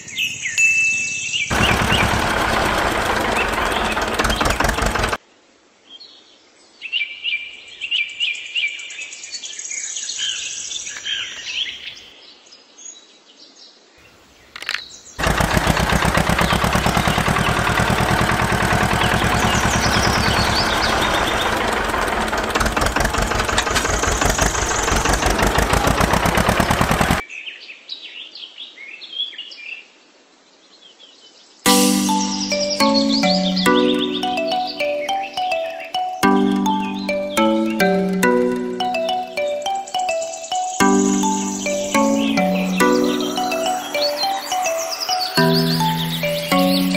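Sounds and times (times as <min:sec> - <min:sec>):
birds chirping: 0:00.0 - 0:05.2, 0:14.0 - 0:27.2, 0:31.7 - 0:46.9
tractor engine running: 0:01.5 - 0:05.2, 0:15.2 - 0:27.2, 0:31.7 - 0:46.9.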